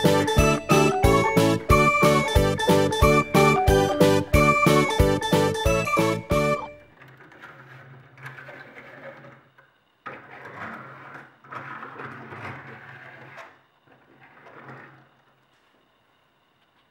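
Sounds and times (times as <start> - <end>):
toy car wheels whirring on table: 6.8 - 15.4.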